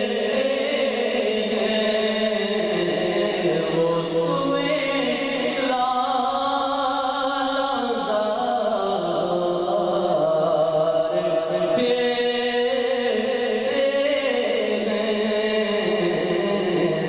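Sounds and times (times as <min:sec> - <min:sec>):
man singing into a microphone: 0:00.0 - 0:17.0.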